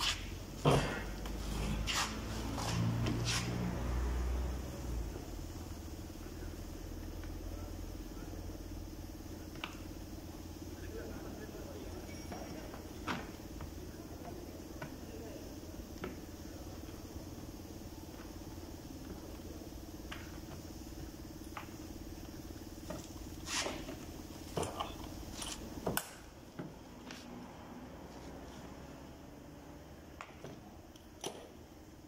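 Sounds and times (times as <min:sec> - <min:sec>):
steady hum: 0:00.0 - 0:31.0.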